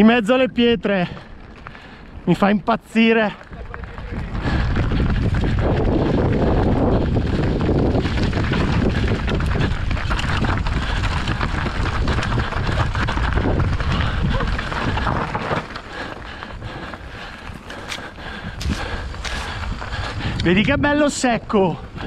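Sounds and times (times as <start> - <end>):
tyres rolling over stones: 3.2 - 20.0
bike frame rattling: 3.3 - 20.3
wind rushing over microphone: 3.3 - 22.0.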